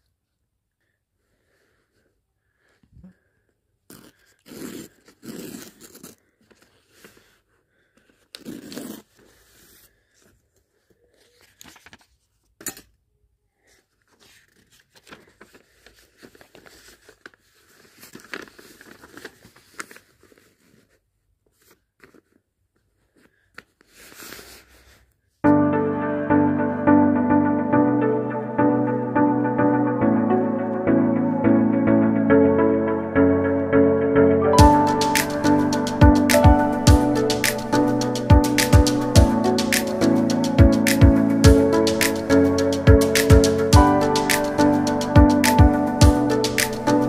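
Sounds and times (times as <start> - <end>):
paper tearing: 3.9 - 7.4, 8.2 - 9.9, 23.8 - 25.0
paper rustling and crinkling: 3.9 - 12.6, 13.6 - 25.2.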